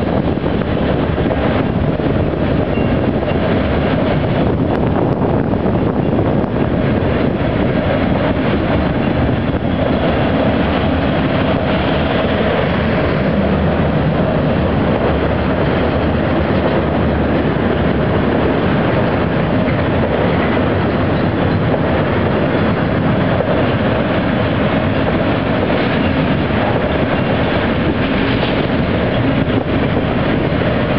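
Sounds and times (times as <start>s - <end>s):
steel wheels running on rails: 0.0s - 30.9s.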